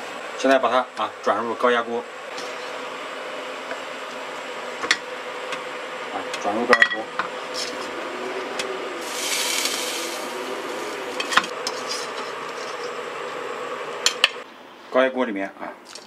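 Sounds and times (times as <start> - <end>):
kitchen hum: 0.0 - 14.4.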